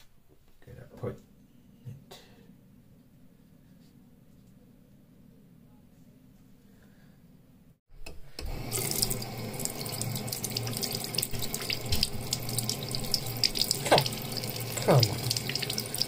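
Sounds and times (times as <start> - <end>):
tap water running into sink: 8.5 - 16.0.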